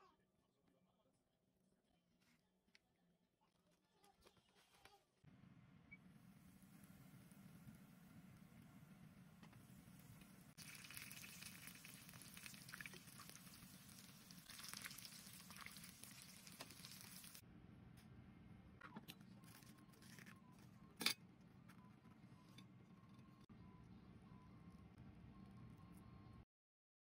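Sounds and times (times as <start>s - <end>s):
oil sizzling in a pan: 9.2s - 17.4s.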